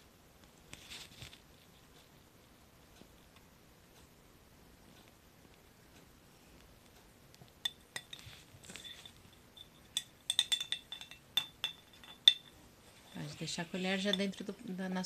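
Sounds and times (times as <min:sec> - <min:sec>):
metal spoon clinking in glass jar: 0:07.6 - 0:13.2.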